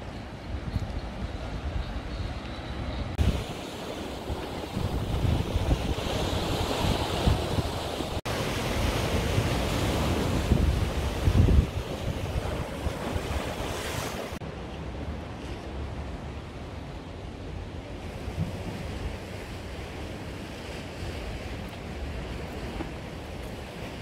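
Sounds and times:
wind buffeting microphone: 0.0 - 14.4
waves breaking on rocks: 3.1 - 14.4.

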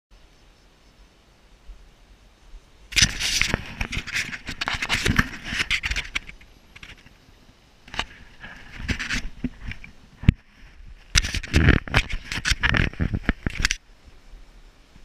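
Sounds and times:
camera handling scraping and rubbing: 2.9 - 7.1, 7.9 - 13.8.

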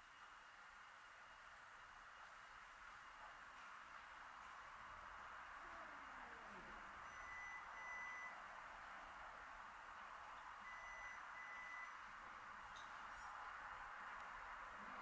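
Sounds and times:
low background hiss: 0.0 - 15.0
short electronic beeps: 7.1 - 8.4, 10.6 - 12.0.

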